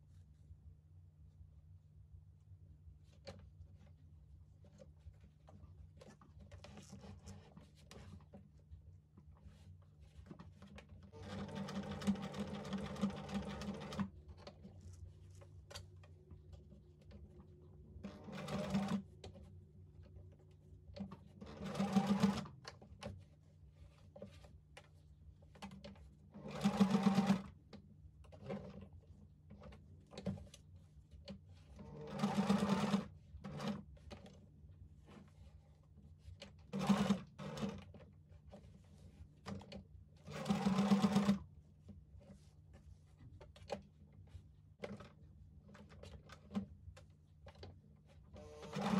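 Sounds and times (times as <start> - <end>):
sewing machine stitching: 11.1 - 14.1, 18.0 - 19.0, 21.0 - 23.1, 26.4 - 27.6, 28.3 - 28.8, 31.7 - 34.4, 36.6 - 38.0, 39.5 - 41.4, 48.4 - 48.9.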